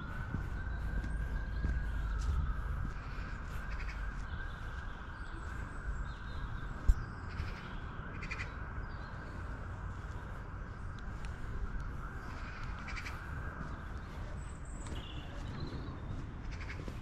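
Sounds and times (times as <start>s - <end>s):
crows cawing: 3.0s - 4.1s, 7.3s - 8.6s, 12.8s - 13.2s, 16.5s - 16.9s.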